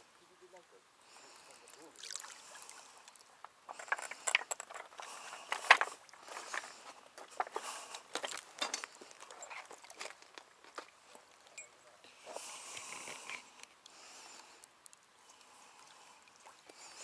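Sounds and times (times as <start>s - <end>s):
fishing gear handling: 3.4s - 11.8s.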